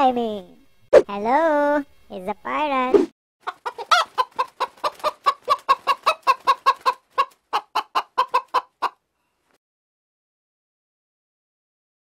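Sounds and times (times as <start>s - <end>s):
chicken clucking: 3.4s - 9.0s.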